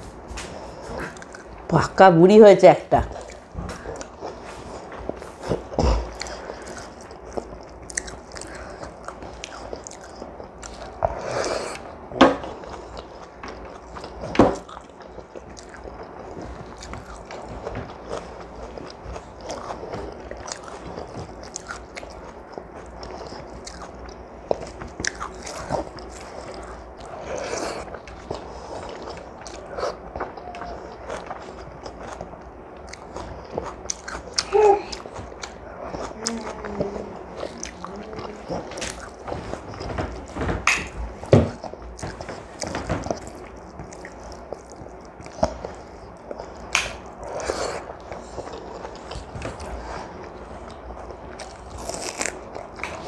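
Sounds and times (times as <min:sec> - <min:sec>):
woman chewing food: 0:00.0 - 0:01.9, 0:03.0 - 0:53.0.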